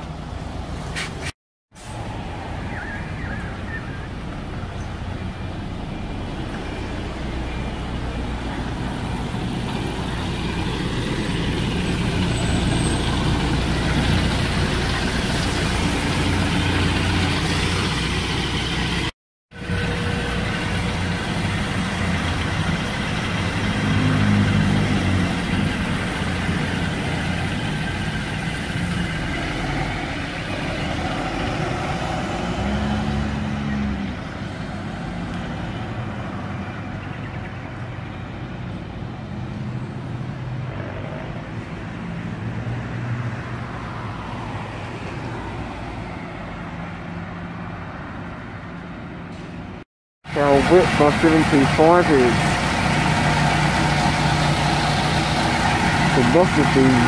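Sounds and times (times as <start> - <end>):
bus engines driving past: 0.0 - 57.0
vehicle engine: 0.0 - 57.0.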